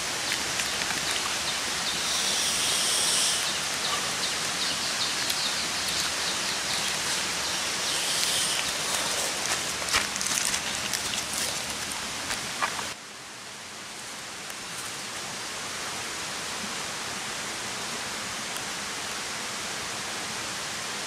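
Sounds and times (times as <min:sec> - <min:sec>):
steady hiss: 0:00.0 - 0:21.0
high chirps: 0:00.6 - 0:09.4
high buzzing call: 0:01.8 - 0:09.3.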